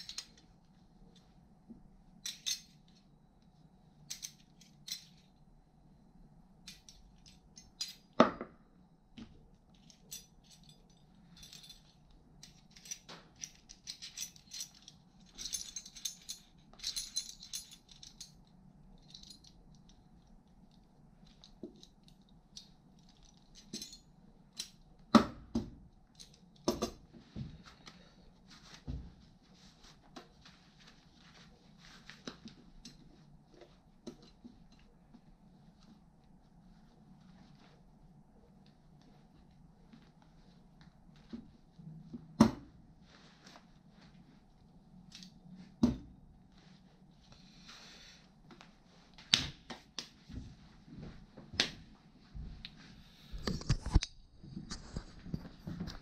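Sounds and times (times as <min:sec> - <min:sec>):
steel parts clinking and rattling: 0:00.0 - 0:00.5, 0:02.2 - 0:03.0, 0:04.1 - 0:05.3, 0:06.6 - 0:08.2, 0:09.7 - 0:20.0, 0:20.7 - 0:24.8.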